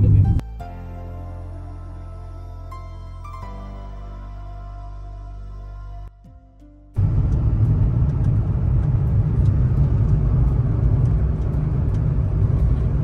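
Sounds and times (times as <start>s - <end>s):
road and engine rumble in car: 0.0s - 0.4s, 6.9s - 13.0s.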